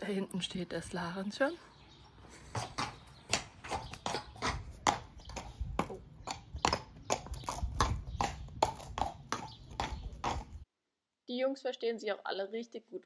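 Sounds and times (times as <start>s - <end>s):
horse hooves on paving stones: 2.0s - 10.7s.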